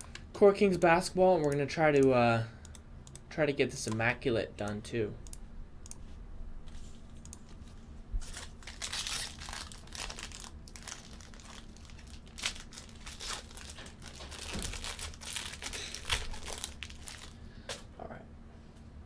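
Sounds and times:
foil wrapper tearing and crinkling: 8.2 - 17.4.

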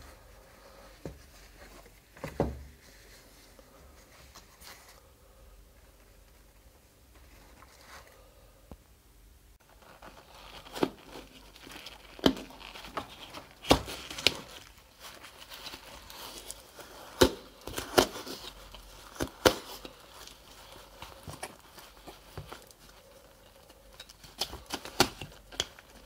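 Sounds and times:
waders material crinkling: 9.7 - 26.0.

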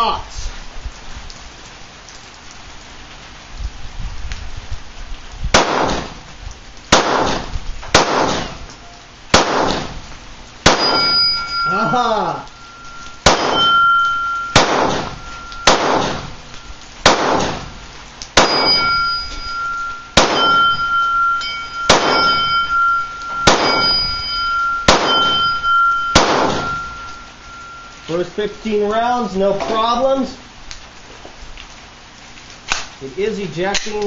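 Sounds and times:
pistol shots: 5.6 - 6.2, 6.9 - 8.6, 9.3 - 10.0, 10.6 - 11.2, 13.2 - 13.8, 14.6 - 16.4, 17.0 - 17.8, 18.4 - 19.1, 20.2 - 20.8, 21.9 - 22.5, 23.4 - 24.0, 24.9 - 25.6, 26.2 - 26.9
high ringing tone: 10.8 - 16.8, 18.4 - 28.8.

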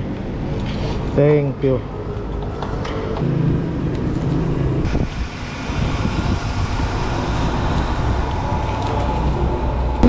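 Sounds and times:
wind noise: 4.0 - 10.0.

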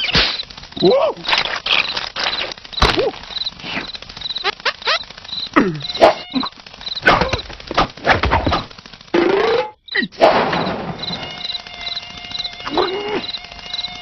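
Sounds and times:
squeaky cartoon character vocalizations: 4.4 - 7.4, 12.6 - 13.4
comic knocks and thuds: 7.1 - 9.4.

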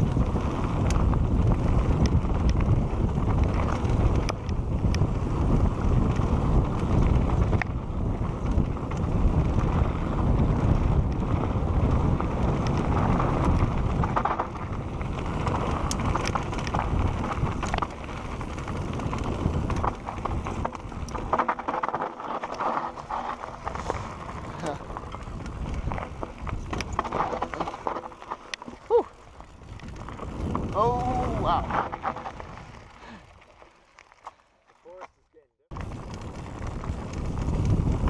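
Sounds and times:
wind buffeting microphone: 0.0 - 21.4, 22.9 - 27.9, 28.6 - 33.4, 35.7 - 38.0
bike clicks and rattles: 0.0 - 38.0
tyres rolling on dirt: 0.0 - 38.0.

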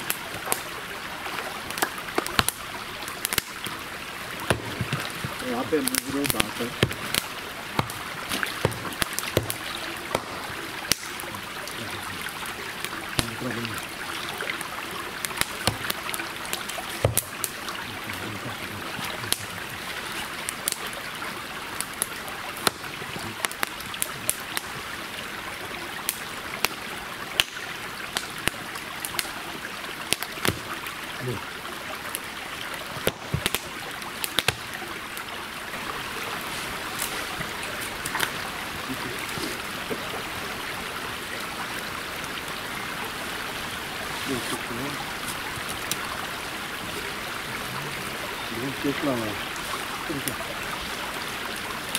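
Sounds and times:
rain on car roof: 0.0 - 13.7, 15.2 - 21.0, 21.7 - 24.8, 32.9 - 40.7
sharp ticks of raindrops: 0.0 - 51.9.

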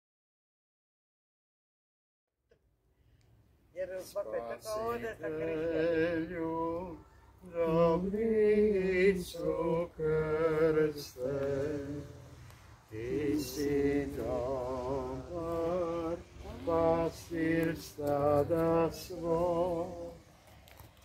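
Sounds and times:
person singing a hymn: 4.0 - 20.5.

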